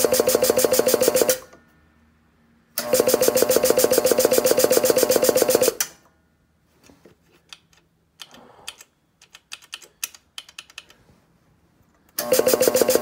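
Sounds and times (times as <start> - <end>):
air compressor running: 2.8 - 5.8, 12.2 - 13.0.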